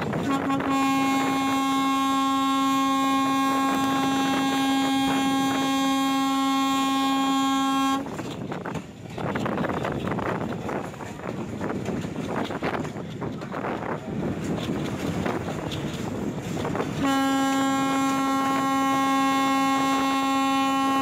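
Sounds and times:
moving train noise: 0:00.0 - 0:21.0
wind on microphone: 0:00.0 - 0:21.0
locomotive air horn blast: 0:00.1 - 0:08.2, 0:16.9 - 0:21.0.

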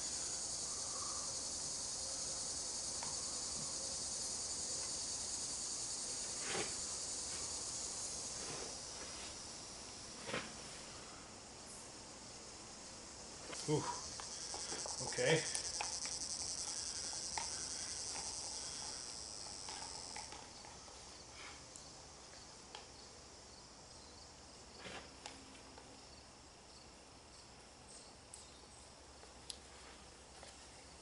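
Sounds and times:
high fast insect trill: 0:00.0 - 0:10.2, 0:11.6 - 0:24.3.

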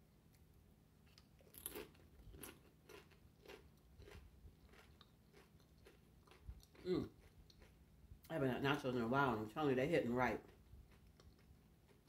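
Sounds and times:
chewing crunchy chips: 0:01.1 - 0:07.8, 0:10.4 - 0:12.0.

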